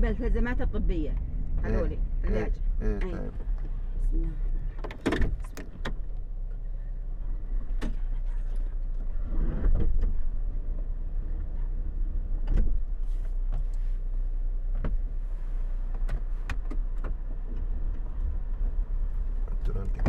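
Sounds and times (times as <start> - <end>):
car engine idling: 0.0 - 9.3.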